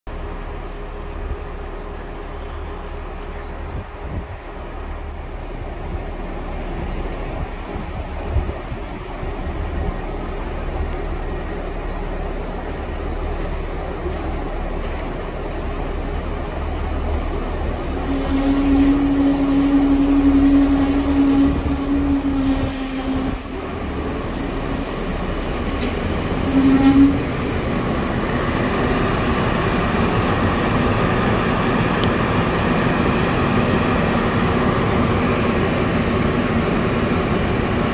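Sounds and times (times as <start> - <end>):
diesel railcar rumbling: 0.1 - 37.9
strong steady horn tone: 18.0 - 23.4, 26.4 - 27.6
high hiss: 23.9 - 30.8.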